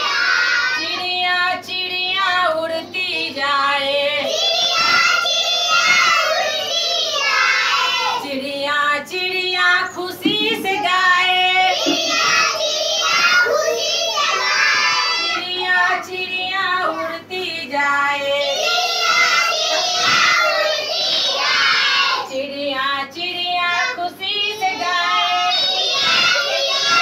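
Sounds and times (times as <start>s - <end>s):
children singing in chorus: 0.0s - 1.2s, 3.9s - 8.4s, 10.2s - 17.3s, 18.2s - 22.5s, 23.6s - 27.0s.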